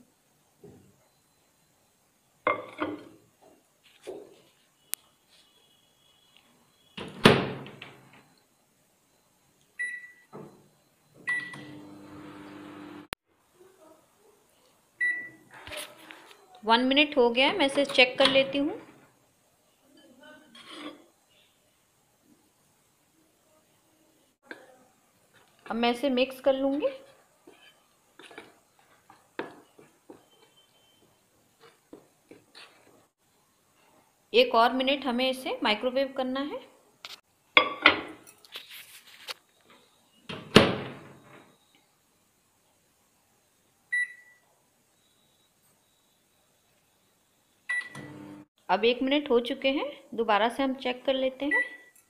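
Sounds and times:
short keypad beeps: 9.8s - 10.3s, 11.3s - 11.7s, 15.0s - 15.4s, 43.9s - 44.4s, 47.7s - 48.1s, 51.5s - 52.0s
microwave humming: 11.2s - 13.2s, 47.7s - 48.5s
spoon scraping bowl: 20.5s - 21.2s.

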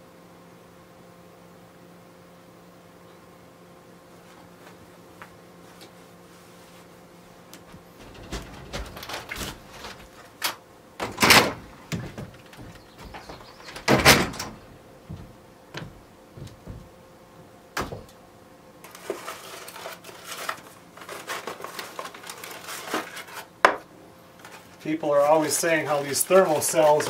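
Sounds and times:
loud thuds: 7.9s - 10.2s, 11.0s - 17.0s
door opening and shutting: 7.9s - 16.8s
light knocks and clicks: 11.9s - 16.9s.

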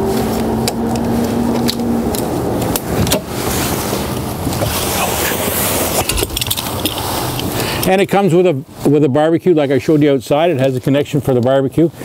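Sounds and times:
netting rustling: 0.0s - 7.9s
metal guard rods clicking: 6.0s - 7.9s.

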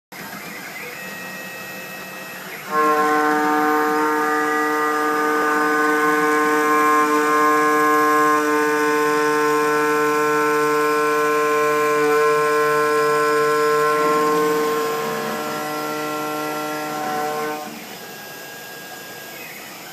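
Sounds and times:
milling machine whine: 0.1s - 19.9s.

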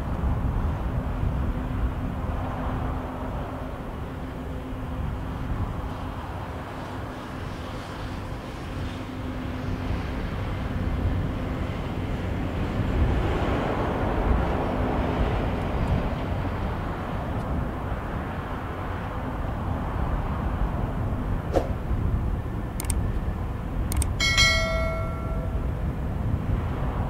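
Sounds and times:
jet engines rumbling at takeoff: 0.0s - 27.0s
sharp clicks: 22.8s - 23.0s, 23.9s - 24.2s
ringing bell chime: 24.2s - 25.7s.

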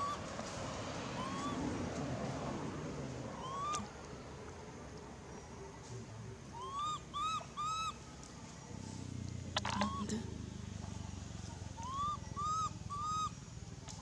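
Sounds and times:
macaque coo calls: 1.2s - 1.6s, 3.3s - 3.9s, 6.5s - 8.0s, 9.6s - 10.4s, 11.7s - 13.4s.

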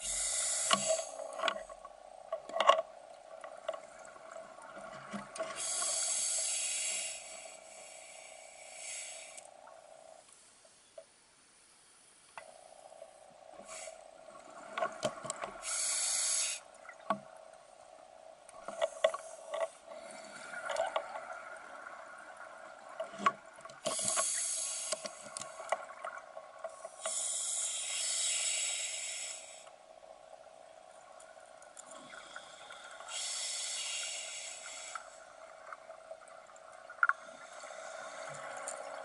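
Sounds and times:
regulator hiss on inhalation: 0.0s - 1.4s, 5.5s - 9.6s, 13.6s - 14.1s, 15.6s - 16.7s, 23.8s - 25.7s, 26.8s - 29.8s, 32.2s - 35.3s.

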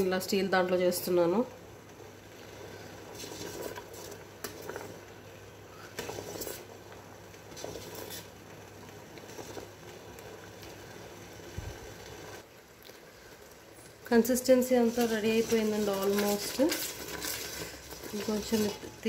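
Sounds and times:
spoon scraping steel pot: 14.8s - 19.0s.

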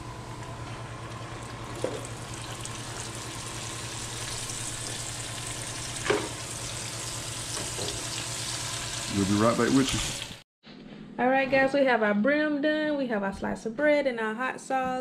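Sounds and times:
fish deep-frying in oil: 1.0s - 10.4s.

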